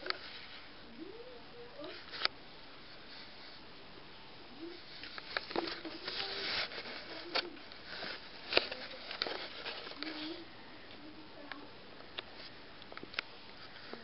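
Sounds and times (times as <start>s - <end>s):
faint voices talking: 3.8s - 12.6s
rustling at microphone: 4.5s - 11.1s.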